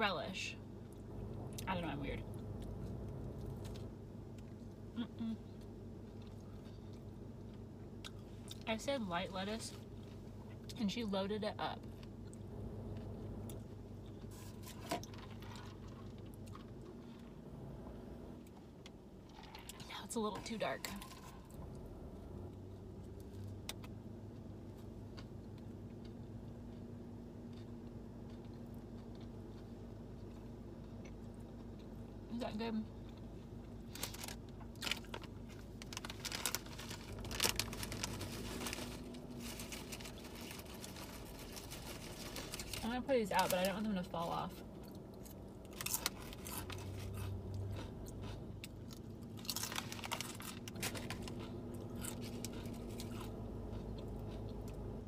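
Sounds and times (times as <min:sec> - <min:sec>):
faint low hum: 0:00.0 - 0:55.0
person chewing: 0:11.8 - 0:17.3, 0:25.1 - 0:32.2, 0:44.8 - 0:55.0
chip bag crinkling: 0:33.8 - 0:43.8, 0:44.9 - 0:54.5.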